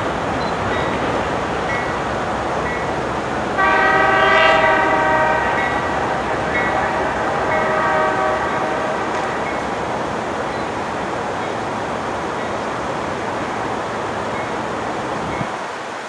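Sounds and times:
moving train rumble: 0.0 - 16.0
locomotive air horn blasts: 3.6 - 9.4.

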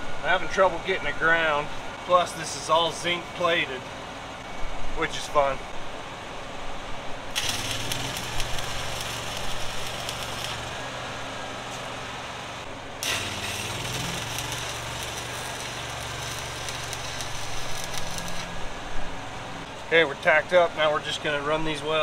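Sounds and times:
engine running: 5.2 - 19.9
welding arc crackling: 7.2 - 19.7.

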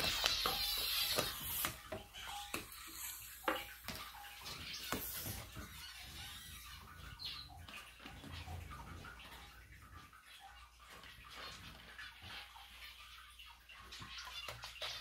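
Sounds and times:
vinegar fizzing on baking soda: 0.0 - 6.5.

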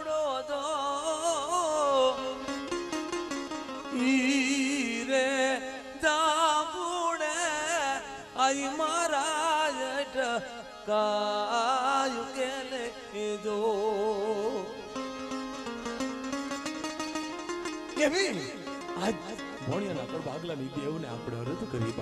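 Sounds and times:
wavering melodic lead: 2.2 - 5.9, 13.8 - 22.0.

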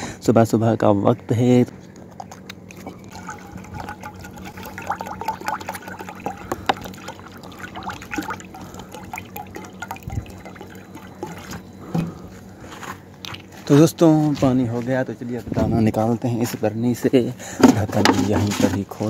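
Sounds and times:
water pouring into a dish: 3.1 - 11.6.

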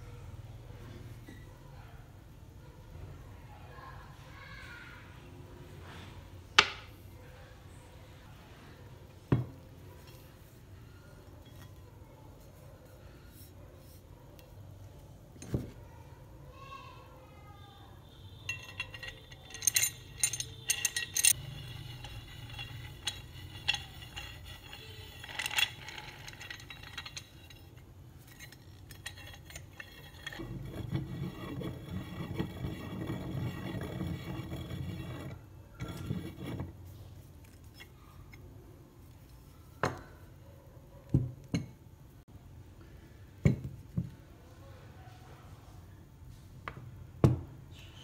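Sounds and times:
metal clicks and clinks: 18.5 - 30.4
screw scraping through threads: 18.5 - 38.4.

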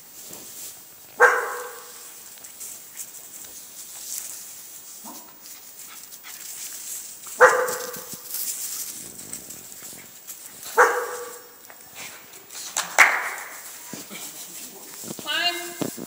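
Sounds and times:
dog barking: 1.2 - 2.0, 5.0 - 5.4, 7.4 - 8.2, 10.7 - 11.6.

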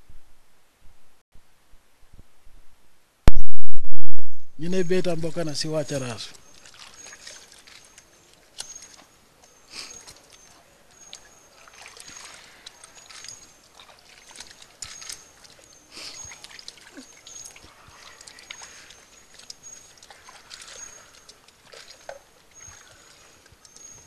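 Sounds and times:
hands splashing in soapy water: 6.4 - 9.0, 9.8 - 23.8.

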